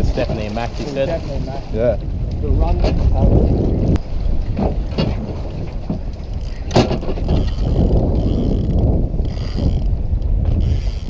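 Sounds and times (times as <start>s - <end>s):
wind rumble on microphone: 0.0s - 11.0s
fishing reel whirring and ratcheting: 6.3s - 11.0s.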